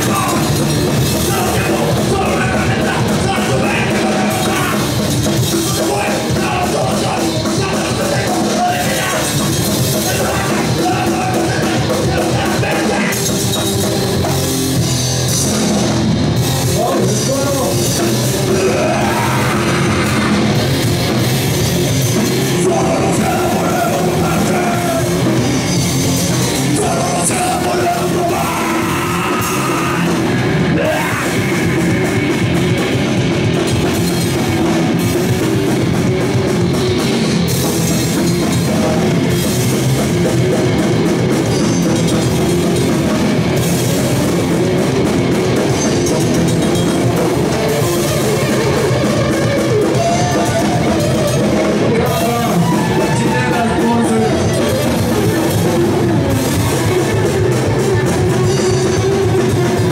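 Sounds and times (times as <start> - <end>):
person singing: 0.0 - 13.4, 16.8 - 20.6, 22.4 - 25.4, 26.6 - 32.4, 47.6 - 59.9
rock band playing live: 0.0 - 59.9.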